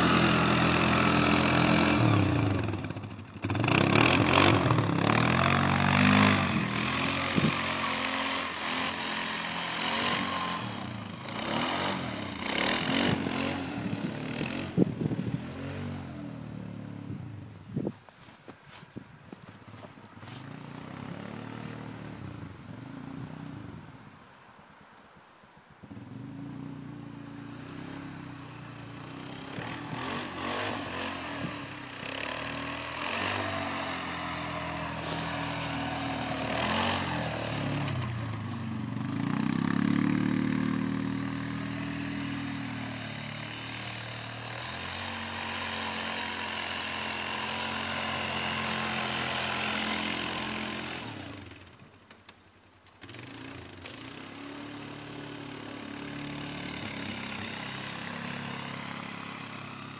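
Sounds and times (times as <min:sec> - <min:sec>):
atv engine revving: 0:00.0 - 0:17.4, 0:19.7 - 0:23.9, 0:25.8 - 0:52.1, 0:52.9 - 0:59.9
rushing hiss: 0:34.8 - 0:36.3.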